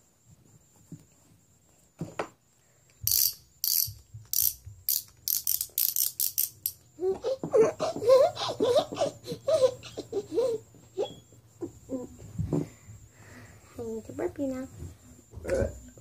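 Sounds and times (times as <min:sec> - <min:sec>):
toy rattling: 0:03.0 - 0:06.9.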